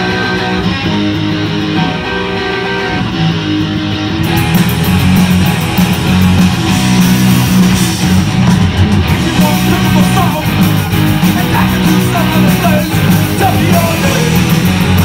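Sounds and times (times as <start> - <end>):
bass guitar: 0.0 - 15.0
electric guitars: 0.0 - 15.0
drum kit cymbals: 4.2 - 15.0.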